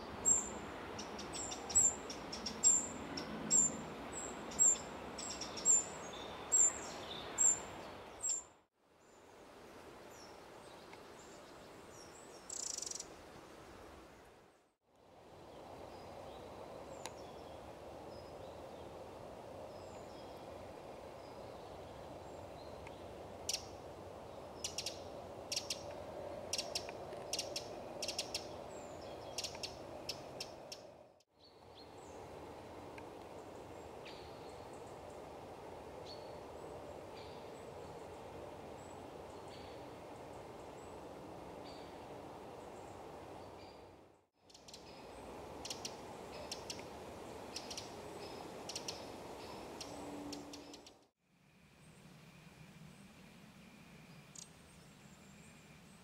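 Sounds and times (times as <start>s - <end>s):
wren ticking calls: 0.2s - 8.4s, 12.5s - 13.1s, 24.6s - 31.0s, 45.6s - 46.9s, 47.5s - 51.1s.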